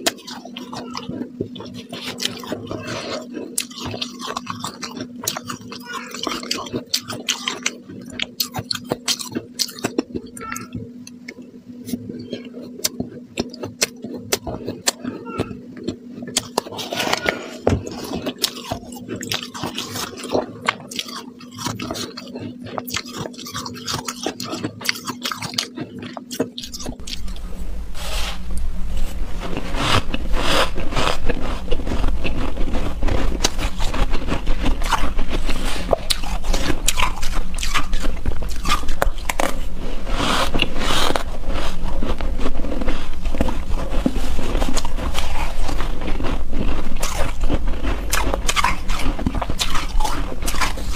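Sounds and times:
chewing crunchy ice: 0:00.0 - 0:27.6, 0:28.5 - 0:50.9
low rumble: 0:26.9 - 0:50.9.

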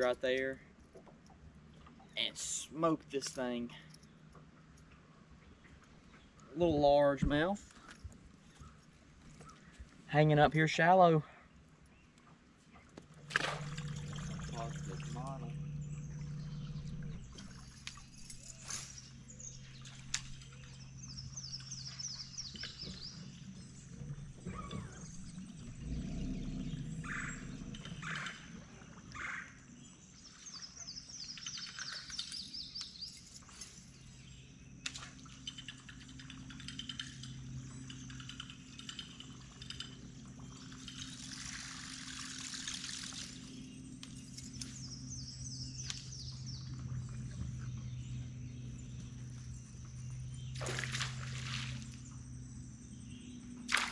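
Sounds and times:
songbirds singing: 0:00.0 - 0:53.9
low hum: 0:11.5 - 0:53.9
water splashing: 0:13.2 - 0:15.5, 0:41.0 - 0:43.6, 0:50.6 - 0:52.0, 0:53.7 - 0:53.9.

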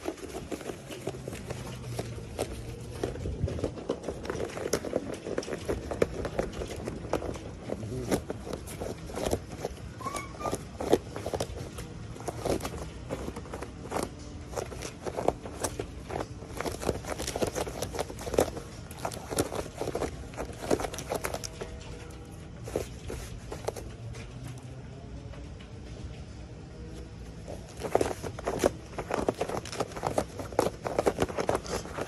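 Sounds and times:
foxes scuffling on tiled floor: 0:00.0 - 0:25.9, 0:26.9 - 0:32.0
high squeak: 0:09.9 - 0:11.2.

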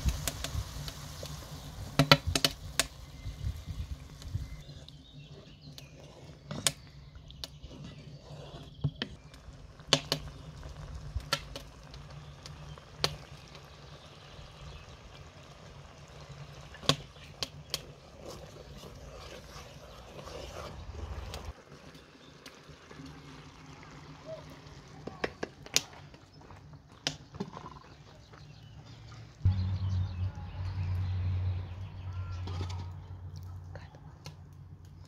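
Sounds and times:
wooden spoon stirring sauce: 0:04.6 - 0:09.4, 0:16.3 - 0:21.6.

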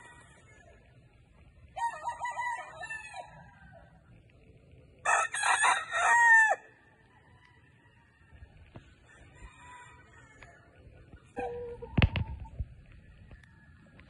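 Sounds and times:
rooster crowing: 0:05.0 - 0:06.7, 0:09.0 - 0:10.7.

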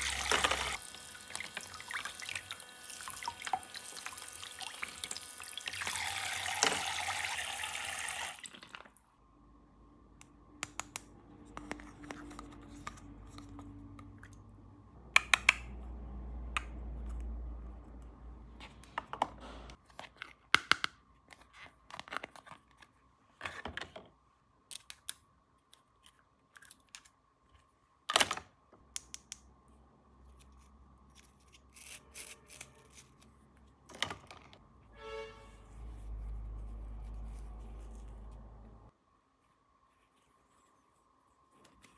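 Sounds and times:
water running: 0:00.0 - 0:09.0.

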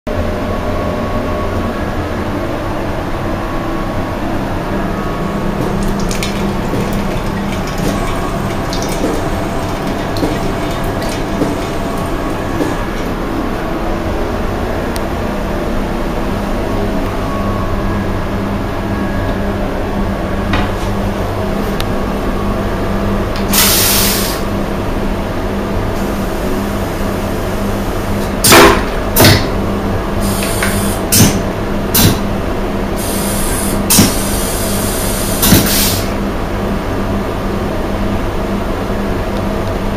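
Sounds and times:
train carriage hum and rumble: 0:00.1 - 0:39.9
vacuum toilet flush bangs: 0:05.5 - 0:13.3, 0:28.4 - 0:29.6, 0:30.4 - 0:32.3, 0:33.8 - 0:34.4, 0:35.4 - 0:36.1.

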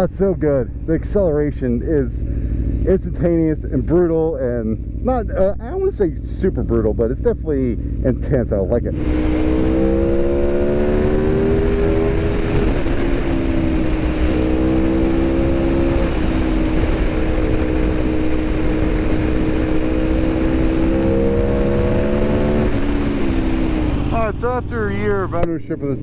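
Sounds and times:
motorcycle engine running hard: 0:00.0 - 0:26.0
rushing wind: 0:08.8 - 0:26.0.

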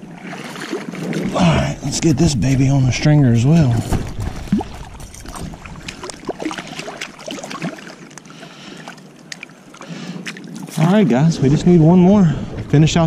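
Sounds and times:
water splashes and drips: 0:00.0 - 0:01.7, 0:03.0 - 0:11.0.

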